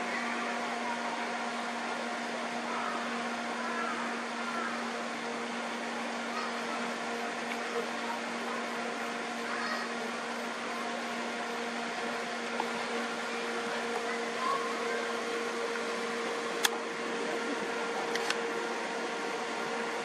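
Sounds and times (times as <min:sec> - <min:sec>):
low even hum: 0:00.0 - 0:20.0
sharp clicks: 0:18.1 - 0:18.4.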